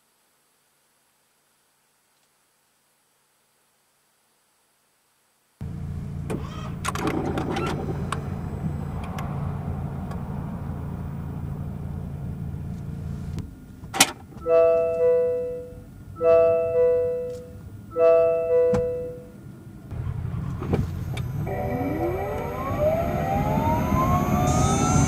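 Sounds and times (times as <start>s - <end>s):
car low hum: 5.6s - 25.0s
two-tone warning chime: 14.4s - 19.4s, 20.8s - 25.0s.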